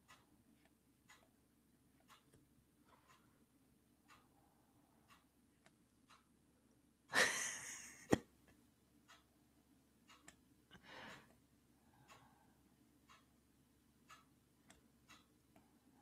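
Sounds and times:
faint ticking: 0:00.0 - 0:06.8, 0:08.9 - 0:16.0
soft breath: 0:10.7 - 0:12.8.

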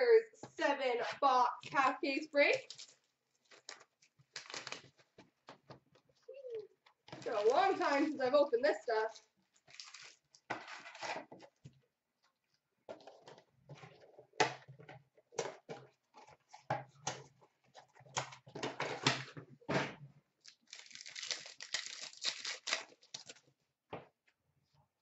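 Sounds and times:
wrapper rustling and crinkling: 0:02.5 - 0:05.2, 0:07.2 - 0:11.1, 0:20.4 - 0:23.4
card pack tearing: 0:03.6 - 0:04.9, 0:09.7 - 0:11.0, 0:20.5 - 0:23.4.

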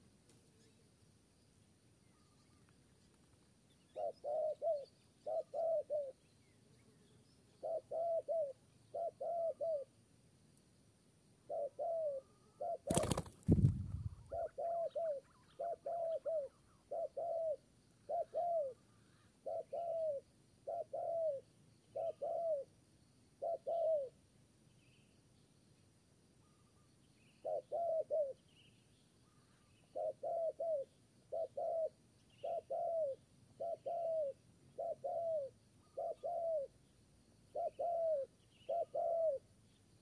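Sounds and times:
dove cooing: 0:03.9 - 0:06.2, 0:07.6 - 0:09.9, 0:11.4 - 0:22.7, 0:23.4 - 0:24.2, 0:27.4 - 0:28.4, 0:29.9 - 0:36.8, 0:37.5 - 0:39.4
wings flapping: 0:12.8 - 0:14.2.

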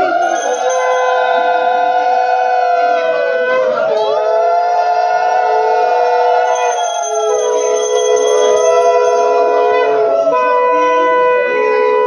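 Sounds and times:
conch shells blown in held notes: 0:00.0 - 0:12.0.

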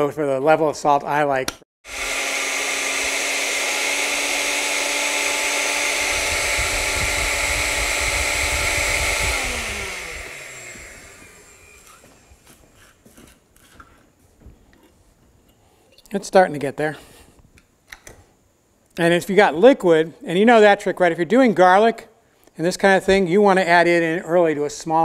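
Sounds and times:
blender motor running: 0:01.8 - 0:12.6.

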